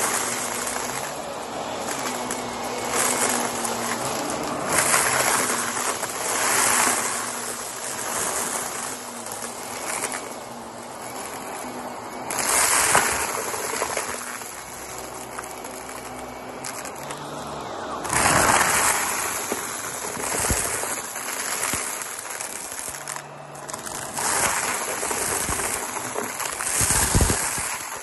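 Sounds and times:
debris crunching through vacuum: 0:00.0 - 0:28.0
vacuum cleaner motor drone: 0:00.0 - 0:28.0.

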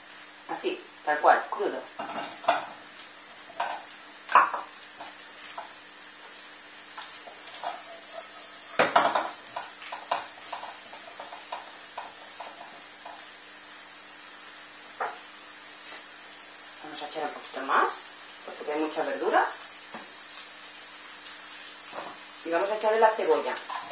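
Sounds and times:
vegetables sizzling in a wok: 0:00.0 - 0:23.9
spatula scraping and knocking pan: 0:02.0 - 0:02.8, 0:03.4 - 0:13.3.

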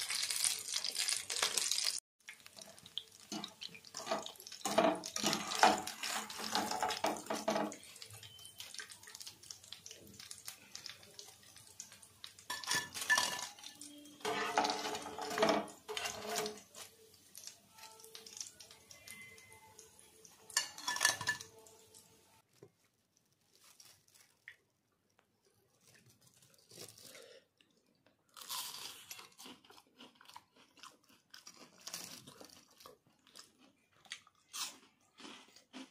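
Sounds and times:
bread sizzling in hot oil: 0:00.0 - 0:22.5
wire skimmer clinking in pan: 0:12.5 - 0:16.7, 0:20.5 - 0:21.6
crunchy bites and chewing: 0:28.3 - 0:35.9.

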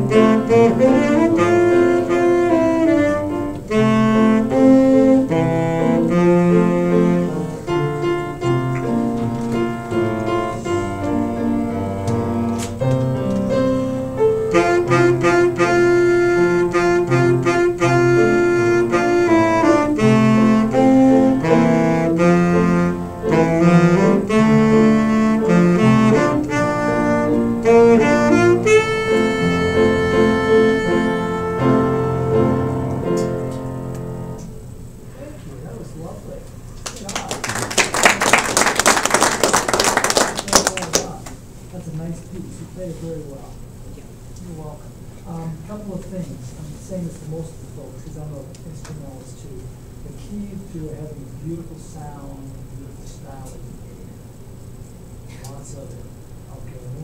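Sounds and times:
tenor saxophone solo: 0:00.0 - 0:34.5
upright piano accompaniment: 0:00.0 - 0:34.8.

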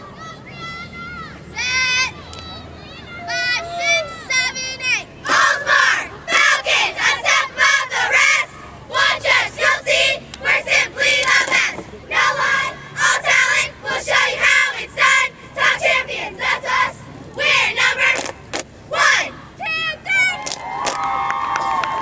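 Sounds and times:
girls shouting a cheer: 0:00.1 - 0:09.6.

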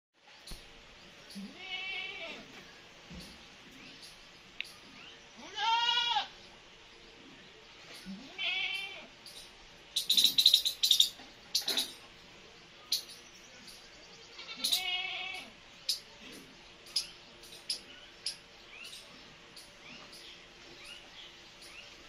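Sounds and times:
high-pitched chirps: 0:09.3 - 0:12.0.

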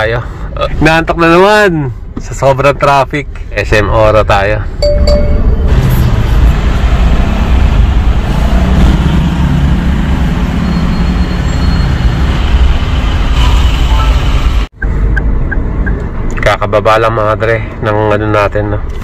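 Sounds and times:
road traffic rumble: 0:00.0 - 0:19.0
short high beeps: 0:04.8 - 0:05.6.

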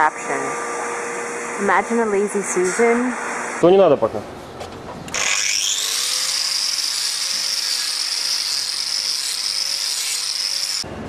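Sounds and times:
angle grinder grinding hoof: 0:05.1 - 0:10.9.

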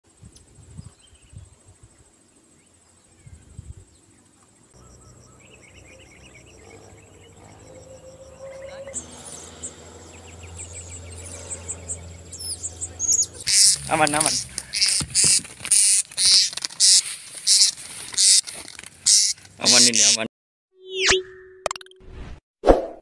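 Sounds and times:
small birds chirping: 0:00.8 - 0:20.2
high-pitched insect drone: 0:04.8 - 0:18.4.

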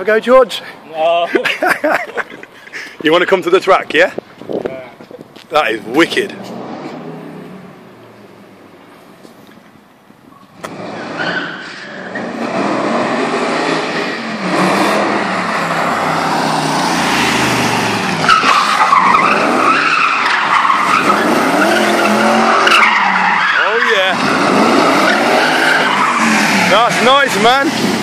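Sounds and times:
car engine revving: 0:05.7 - 0:08.6, 0:10.5 - 0:28.0
tyres squealing: 0:16.7 - 0:27.8.

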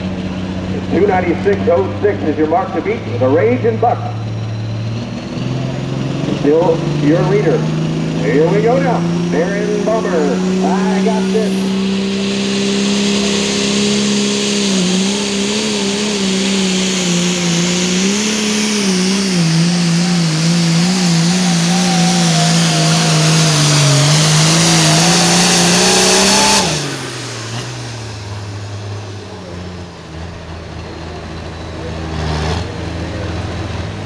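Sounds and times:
tractor engine at full throttle: 0:00.0 - 0:34.0
engine idling: 0:12.7 - 0:34.0.

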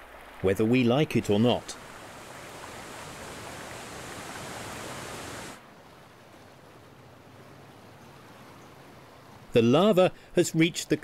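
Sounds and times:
water rushing: 0:00.0 - 0:11.0
steady wash of noise: 0:01.7 - 0:05.6.

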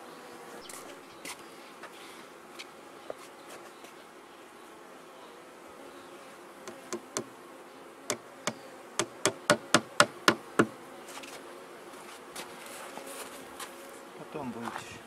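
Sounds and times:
honeybees humming: 0:00.0 - 0:15.0
hammer tapping nail into wood: 0:09.0 - 0:10.7.

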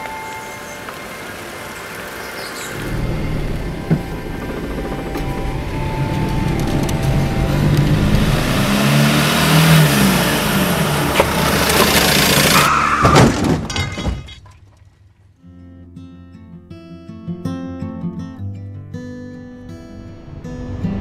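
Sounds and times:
road rush: 0:00.0 - 0:13.2
tire screech: 0:02.6 - 0:13.4
car engine speeding up: 0:02.7 - 0:12.9
heavy thump: 0:02.8 - 0:07.1.

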